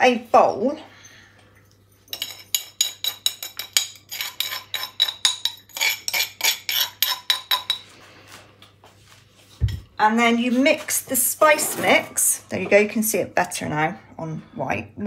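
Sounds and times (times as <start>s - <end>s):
pestle and mortar clinking: 2.1s - 7.9s.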